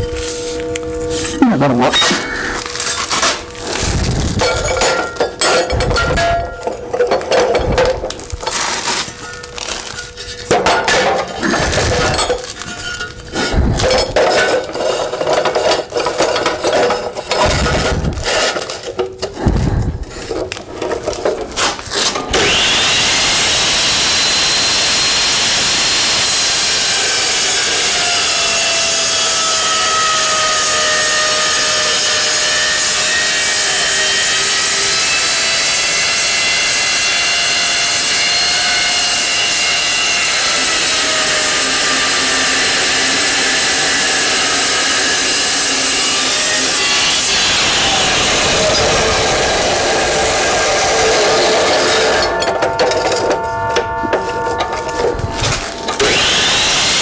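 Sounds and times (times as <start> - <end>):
metal-cutting saw cutting steel: 0.0 - 19.4, 20.8 - 57.0
steel pieces clanking: 0.0 - 22.6, 48.3 - 57.0.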